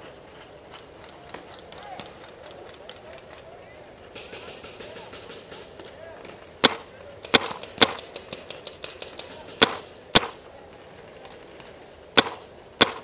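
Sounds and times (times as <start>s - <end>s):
distant paintball gun pops: 6.6s - 10.4s, 12.2s - 13.0s
paintball gun cracks: 6.6s - 10.4s, 12.2s - 13.0s.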